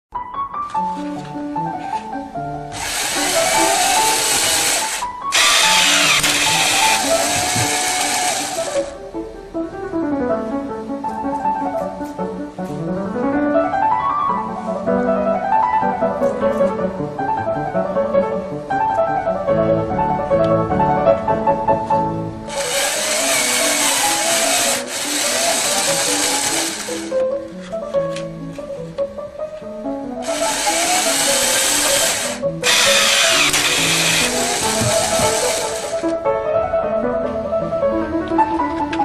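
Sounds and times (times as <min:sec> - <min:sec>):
piano background music: 0:00.1 - 0:39.0
ball launcher motor whirring: 0:02.8 - 0:08.9, 0:22.5 - 0:27.1, 0:30.2 - 0:36.1.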